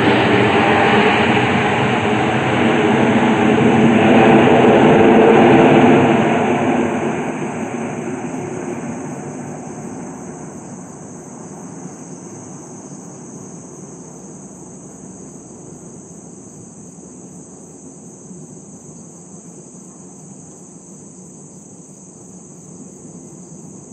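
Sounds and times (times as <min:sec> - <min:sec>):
distant jet rumble: 0:00.0 - 0:18.8
high-pitched insect drone: 0:00.0 - 0:23.9.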